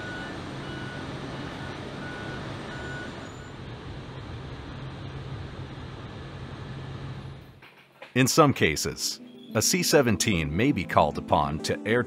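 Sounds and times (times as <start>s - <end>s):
reversing alarm beeps: 0.0s - 3.7s
heavy vehicle engine humming: 0.0s - 7.6s.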